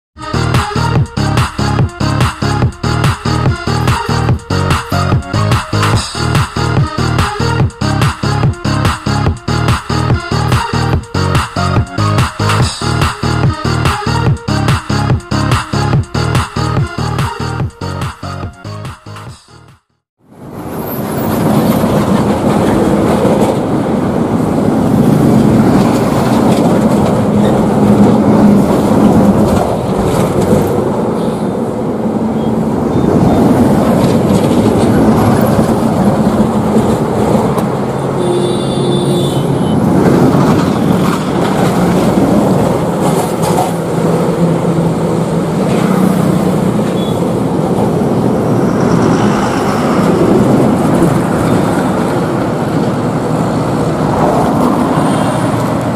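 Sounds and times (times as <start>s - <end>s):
diesel lorry engines: 0.2s - 55.9s
tyres rumbling: 32.8s - 38.1s.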